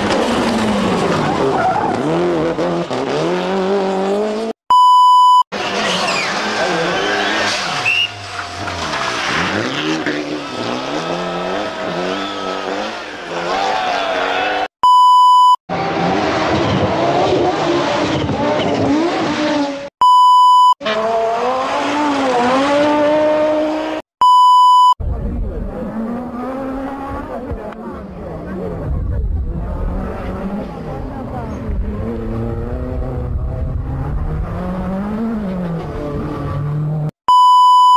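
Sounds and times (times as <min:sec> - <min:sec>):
rally car engines revving: 0:00.0 - 0:04.6, 0:05.5 - 0:14.7, 0:15.7 - 0:19.9, 0:20.8 - 0:24.1, 0:25.0 - 0:37.1
steady test-tone beep: 0:04.7 - 0:05.5, 0:14.8 - 0:15.6, 0:20.0 - 0:20.8, 0:24.2 - 0:25.0, 0:37.3 - 0:37.9.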